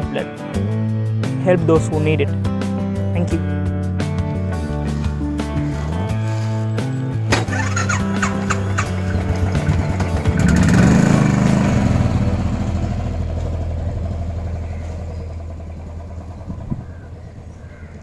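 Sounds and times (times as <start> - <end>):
motorcycle engine running: 4.4 - 18.0.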